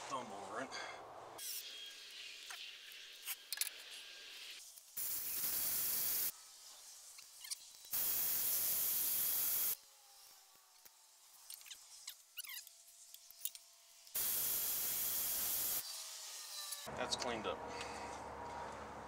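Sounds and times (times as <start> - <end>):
drill sanding drum hissing: 4.3 - 6.4, 7.9 - 9.8, 14.1 - 15.8.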